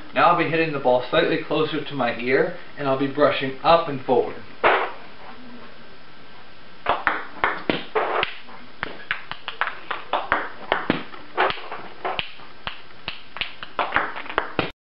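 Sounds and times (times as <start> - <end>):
ball bouncing on table: 6.9 - 12.3
paddle striking ball: 6.9 - 12.4.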